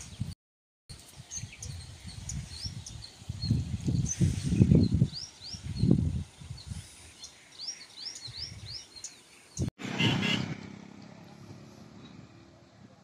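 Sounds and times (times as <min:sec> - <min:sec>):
wind gusting against microphone: 0:00.0 - 0:10.4
bird chirping: 0:01.0 - 0:09.7.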